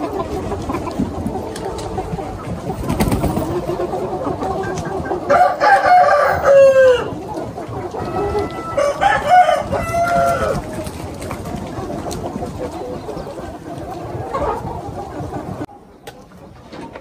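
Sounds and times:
chickens clucking: 0.0 - 17.0
rooster crowing: 5.3 - 7.1, 8.6 - 10.6.

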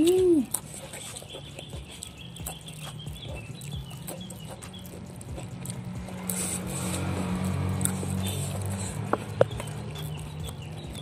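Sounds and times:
chewing: 0.0 - 11.0
faint bird chirping: 0.2 - 5.5, 8.2 - 11.0.

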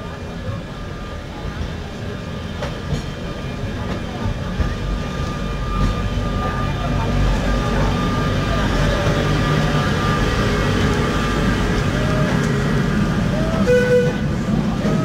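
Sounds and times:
electric tram rumble and hum: 0.0 - 15.0.

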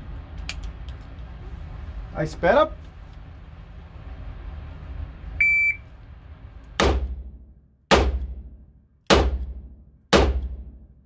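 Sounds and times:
shot timer beep: 5.4 - 5.8.

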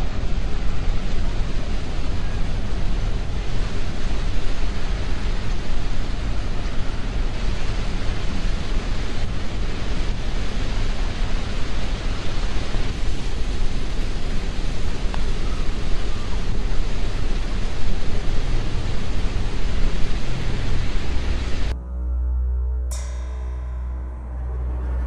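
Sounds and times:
wind buffeting microphone: 0.0 - 21.8.

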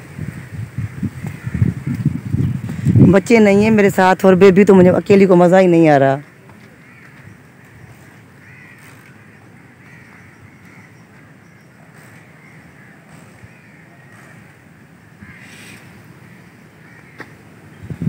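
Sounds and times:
crows cawing: 0.2 - 2.8, 6.2 - 17.5.

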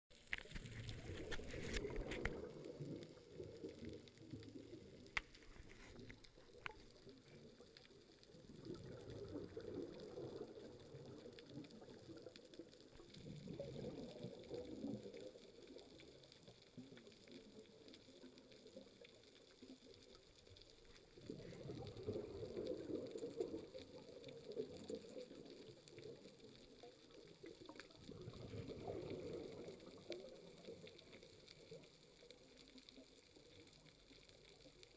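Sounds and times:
faint clicks: 0.2 - 34.9
underwater breath bubbling: 21.2 - 24.2.

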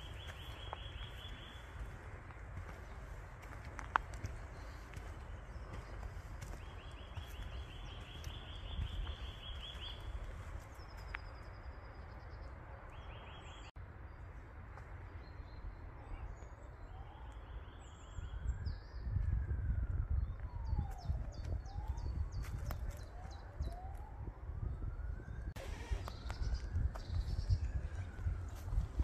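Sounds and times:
songbird trilling: 6.6 - 10.2.

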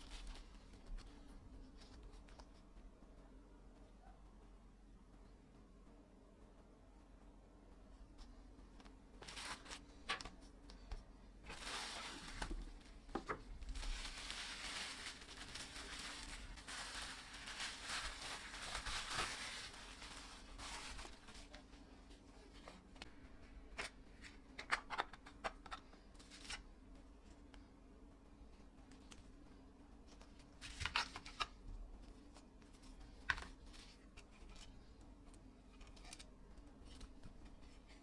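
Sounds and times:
bubble wrap crinkling: 0.0 - 2.6, 9.2 - 10.5, 11.3 - 21.8.

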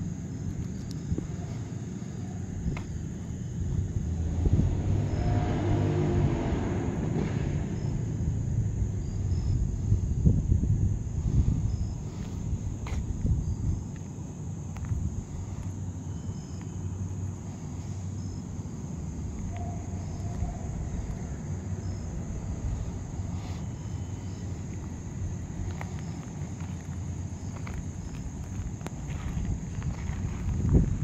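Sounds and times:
crickets chirring: 0.0 - 31.0
steady low rumble: 0.0 - 31.0
faint ticks: 0.5 - 1.3.

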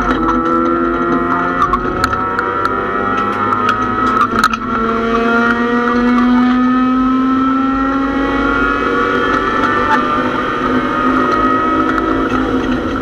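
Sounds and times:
race car engine accelerating: 0.0 - 13.0.

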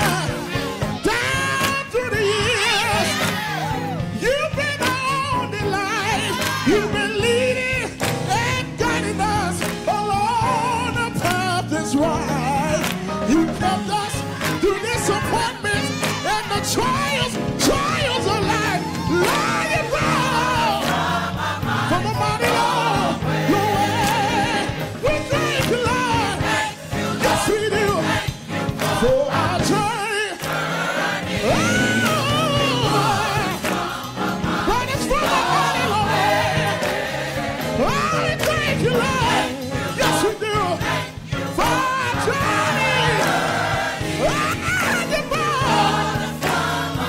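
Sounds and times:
gospel choir singing: 0.0 - 47.0.

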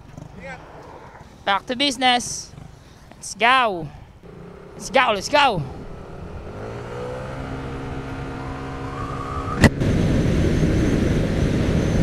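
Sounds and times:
wind and road noise: 0.0 - 12.0
scooter engine pulling away: 4.2 - 12.0.

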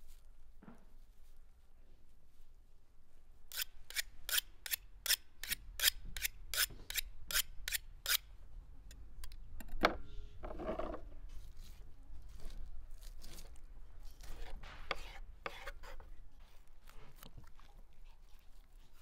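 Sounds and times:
knives scraping together: 3.5 - 8.2, 11.4 - 16.1.

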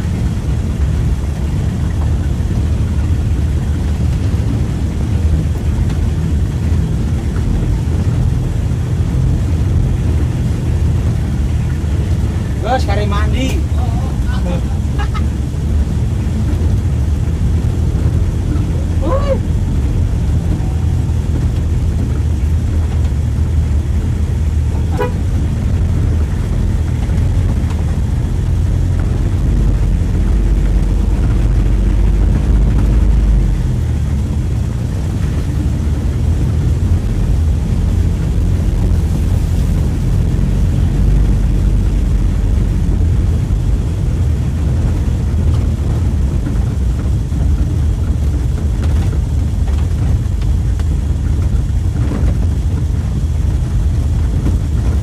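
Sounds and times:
pickup engine running: 0.0 - 55.0
short horn toot: 24.9 - 25.3.

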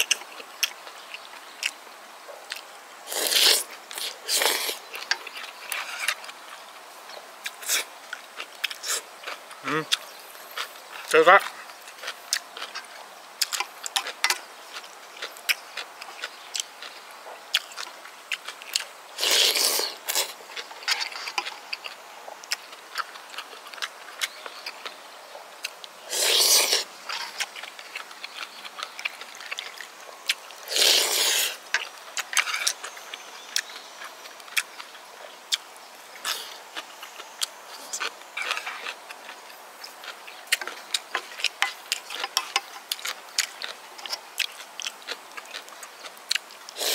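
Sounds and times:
wet chewing: 0.0 - 1.8, 2.5 - 46.9
slurping soup from a spoon: 3.1 - 4.8, 19.2 - 21.5, 26.1 - 27.4, 30.7 - 31.6.

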